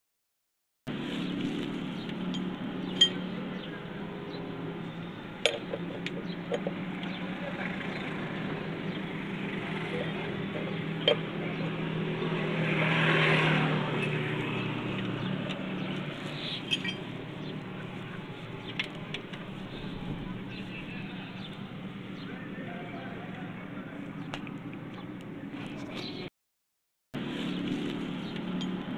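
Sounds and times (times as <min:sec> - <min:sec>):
socket tool clinking on bolts: 0:16.7 - 0:17.1.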